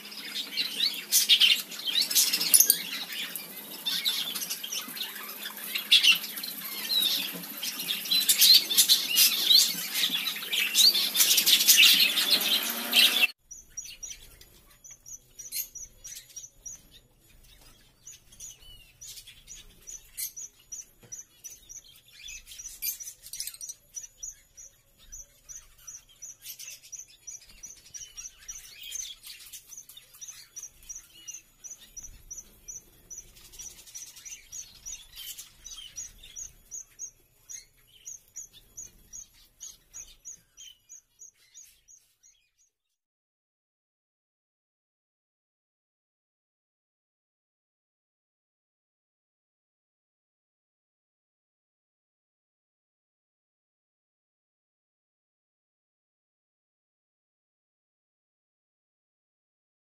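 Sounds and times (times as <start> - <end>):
birds chirping: 0.0 - 42.7.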